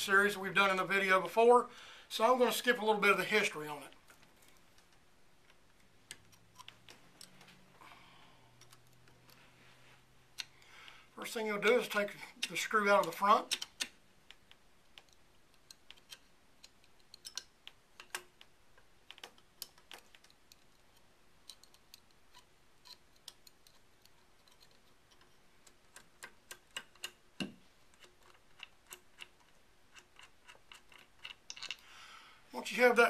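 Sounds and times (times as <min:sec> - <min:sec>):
screwdriver clicks: 0:13.0 - 0:18.5.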